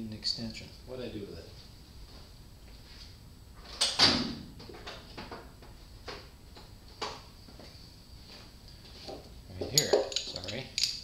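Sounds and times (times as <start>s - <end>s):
tools clattering: 9.6s - 11.0s.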